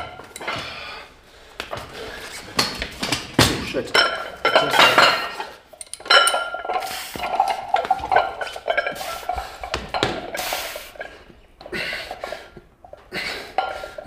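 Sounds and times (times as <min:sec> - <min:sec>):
metal gym weights clanking: 0:03.6 - 0:11.2.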